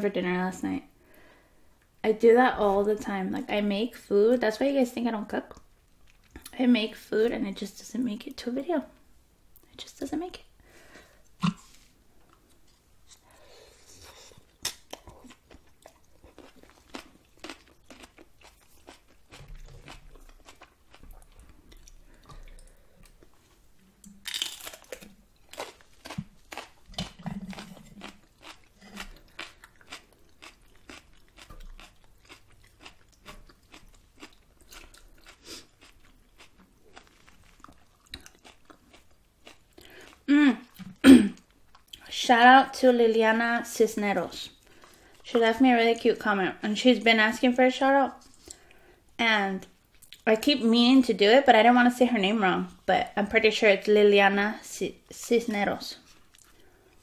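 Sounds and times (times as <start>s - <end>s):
person chewing and crunching food: 11.2s - 42.1s, 56.0s - 57.0s.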